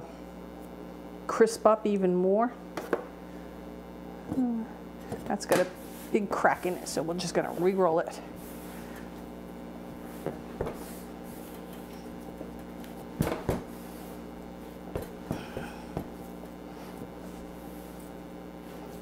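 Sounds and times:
steady low hum: 0.0s - 19.0s
dough thumping on countertop: 13.2s - 13.8s.

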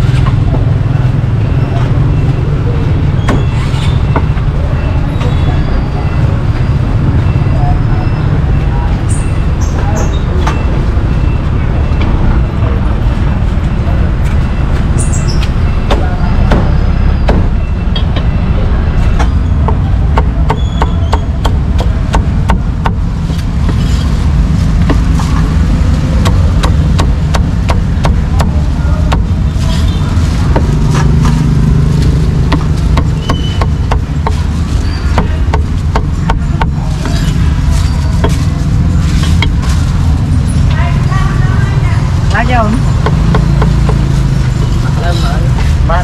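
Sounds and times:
low traffic rumble: 0.0s - 46.0s
cleaver chopping on wooden board: 35.2s - 36.8s.

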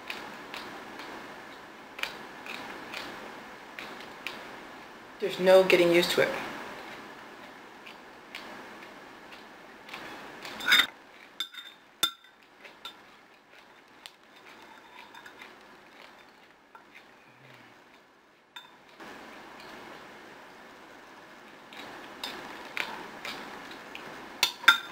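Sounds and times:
metal spoon clinking on glass bowl: 10.6s - 13.0s, 24.4s - 24.9s.

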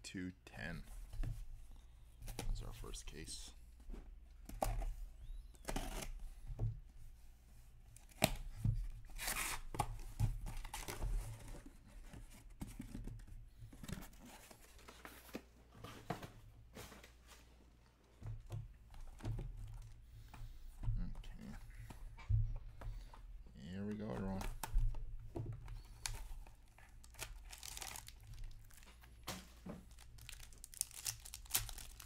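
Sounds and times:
packing tape tearing: 5.6s - 6.2s, 27.0s - 28.9s, 29.9s - 32.0s.

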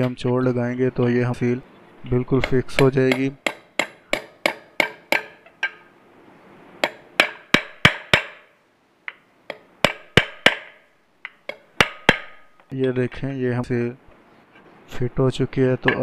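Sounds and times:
metal axle tapping a seal: 2.4s - 5.9s, 9.1s - 12.7s.

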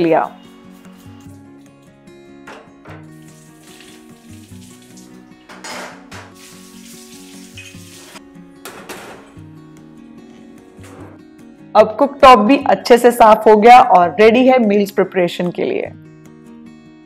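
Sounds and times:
soft background music: 0.0s - 17.0s
tap water running into metal sink: 2.9s - 9.1s
water splashing: 3.1s - 5.3s, 6.2s - 8.2s.

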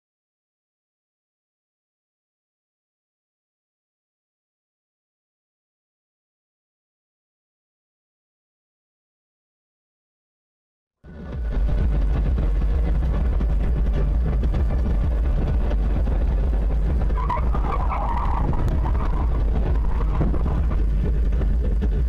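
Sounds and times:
car road and engine rumble: 11.0s - 22.0s.

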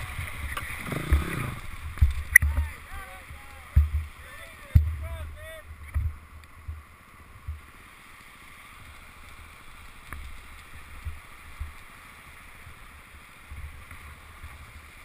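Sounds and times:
creek rushing: 0.0s - 15.0s
low thumps on microphone: 3.7s - 4.1s, 4.7s - 5.2s.

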